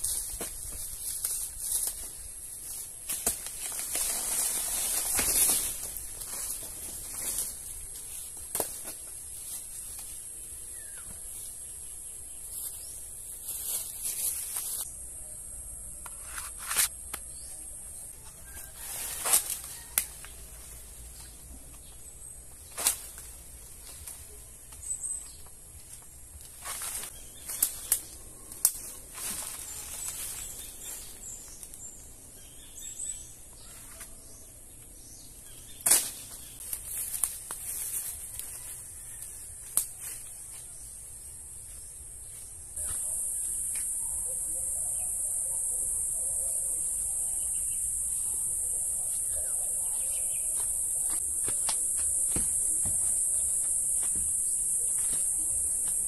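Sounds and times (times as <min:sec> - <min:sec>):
insects droning: 0:00.0 - 0:56.0
plant stalks snapping: 0:08.5 - 0:09.1, 0:26.6 - 0:29.6, 0:35.8 - 0:37.7, 0:51.1 - 0:52.8
bird chirps: 0:42.8 - 0:53.7.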